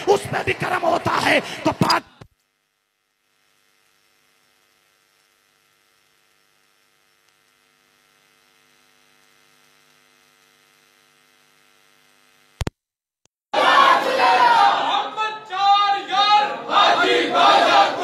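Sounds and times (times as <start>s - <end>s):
light hiss: 2.4s - 12.7s.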